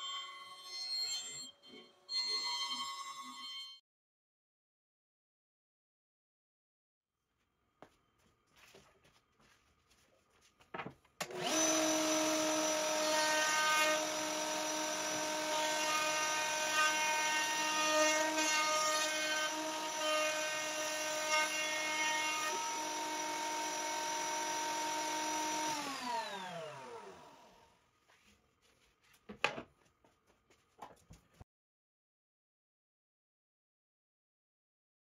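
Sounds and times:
router whining: 11.2s - 27.6s.

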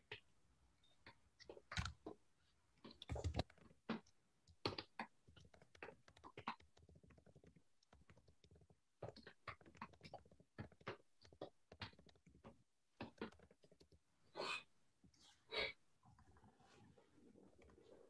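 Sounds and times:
keyboard typing: 1.6s - 2.0s.

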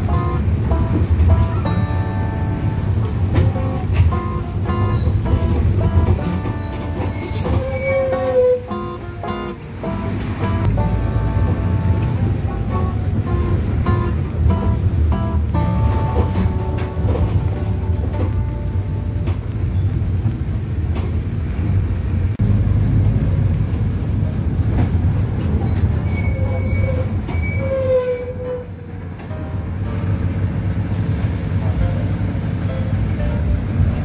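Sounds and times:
bus engine and road rumble: 0.0s - 34.0s
brakes squealing: 3.1s - 10.9s, 21.6s - 29.2s.

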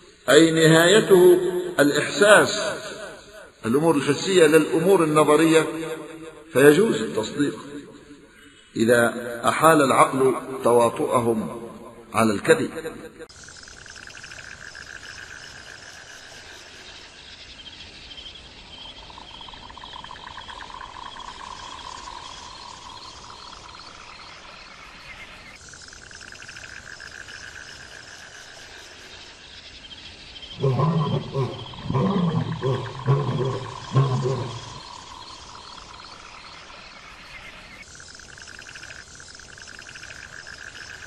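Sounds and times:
lion roaring: 30.6s - 34.9s
high trilling animal calls: 30.6s - 35.9s.

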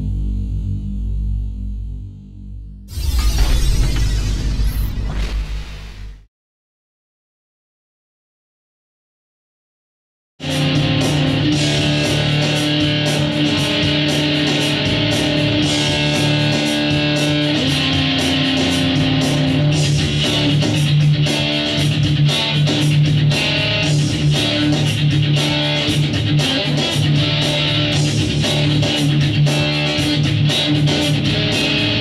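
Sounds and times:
electric guitar playing: 10.4s - 32.0s.

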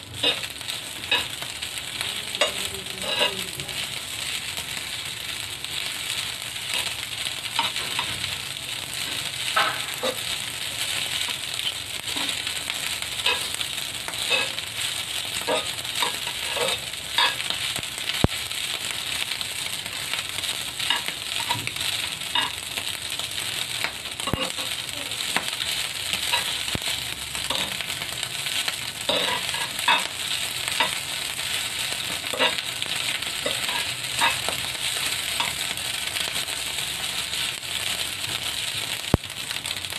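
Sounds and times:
rice sizzling in a pan: 0.0s - 39.9s
metal spoon scraping pan: 2.4s - 3.4s, 14.2s - 14.6s, 15.5s - 17.4s, 29.1s - 30.1s.

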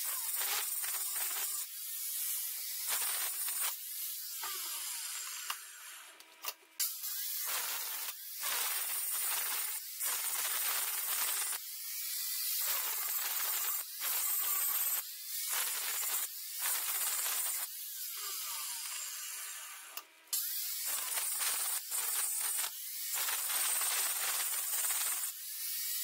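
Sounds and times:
angle grinder grinding steel: 0.0s - 26.0s.

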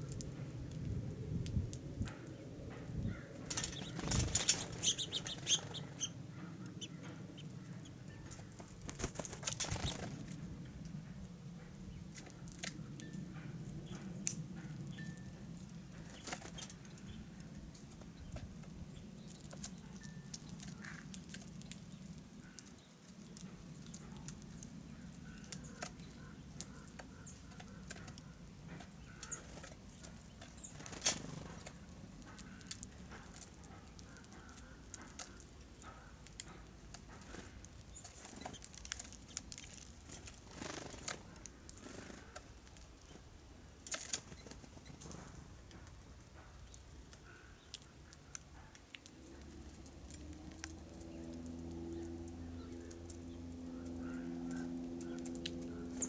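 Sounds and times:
birds tapping on metal feeders: 3.1s - 10.1s, 19.2s - 42.6s, 43.8s - 56.0s.

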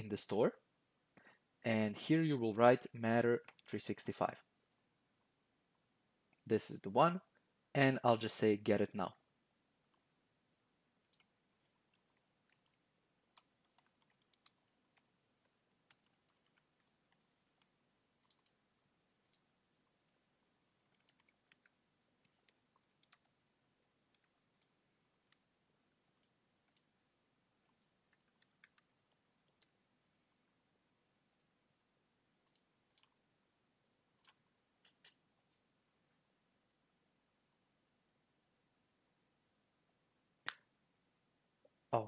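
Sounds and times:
mouse clicks: 11.0s - 15.1s, 15.8s - 18.6s, 19.2s - 19.5s, 26.1s - 26.9s, 32.4s - 33.2s, 34.2s - 35.2s
keyboard typing clicks: 15.7s - 18.6s, 19.2s - 19.5s, 20.9s - 23.3s, 24.1s - 25.4s, 26.2s - 26.9s, 28.1s - 29.8s, 32.4s - 33.1s.

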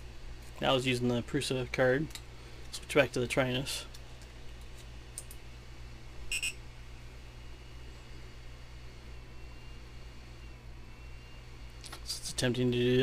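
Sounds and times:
low steady hum: 0.0s - 13.0s
short high electronic beep: 6.3s - 6.6s.

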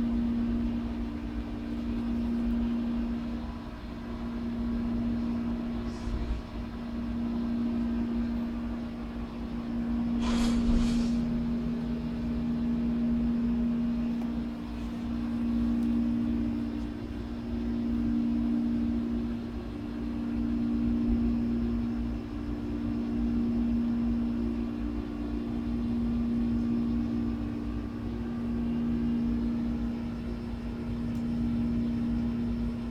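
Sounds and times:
low machine hum: 0.0s - 32.9s
low rumble: 5.3s - 7.0s, 10.1s - 12.3s
brief sharp higher sound: 10.2s - 11.3s.

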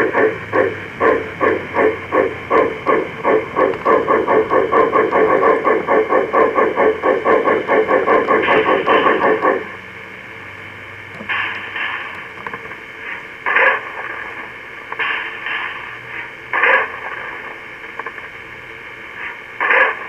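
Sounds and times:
model steam locomotive hissing: 0.0s - 10.0s, 11.3s - 20.0s.

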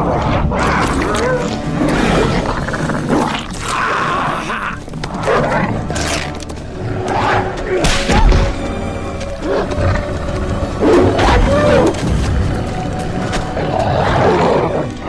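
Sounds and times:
creature snarls and roars: 0.0s - 8.4s
film score music: 0.0s - 15.0s.

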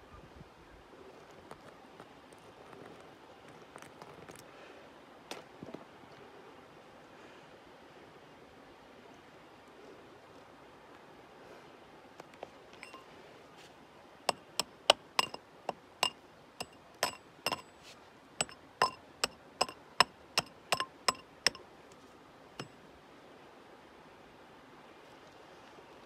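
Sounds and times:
knock: 14.3s - 15.4s
steel tool chipping rock: 14.3s - 17.8s, 18.4s - 21.6s.

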